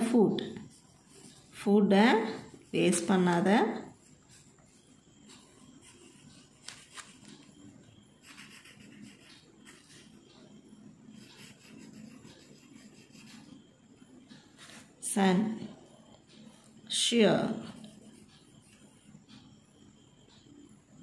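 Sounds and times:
pen scratching on paper: 8.2 - 10.1, 11.1 - 13.6.

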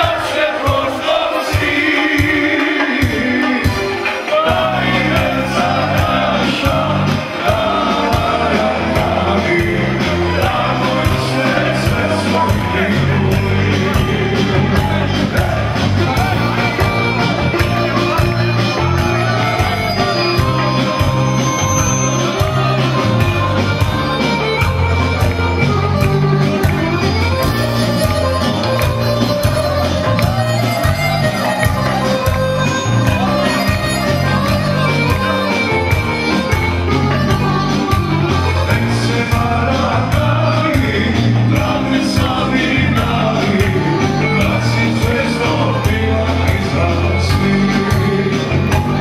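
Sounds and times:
men singing and shouting: 0.0 - 24.5, 36.6 - 49.0.

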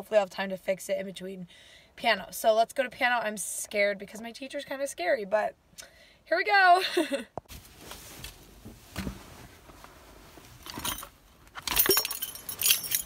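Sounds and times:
keys jingling: 10.6 - 13.0.

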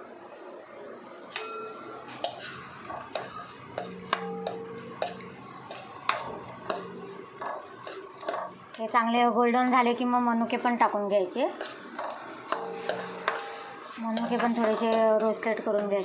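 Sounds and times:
light sizzle: 0.8 - 16.0
ladle knocking and scraping pan: 2.2 - 8.7, 11.6 - 16.0.

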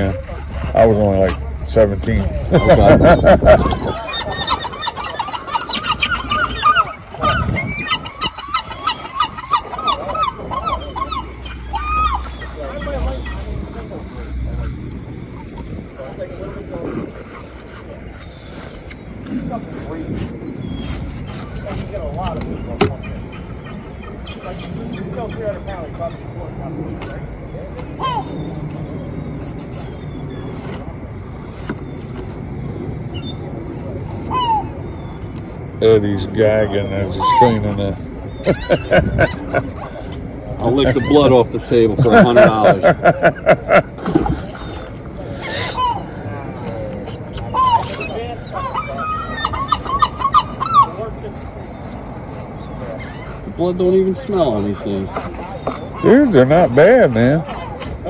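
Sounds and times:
flock of birds calling: 0.0 - 30.8, 31.5 - 58.0
boat engine rumble: 0.0 - 58.0.

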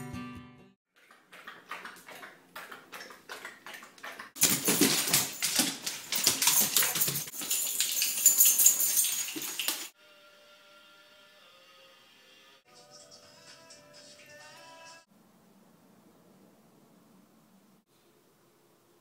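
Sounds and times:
dog eating from metal bowl: 1.0 - 9.9.

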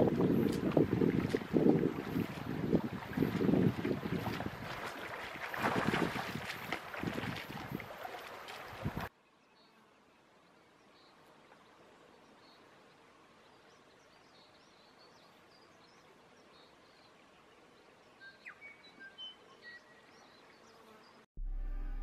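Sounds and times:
faint steady hiss: 9.1 - 21.2.

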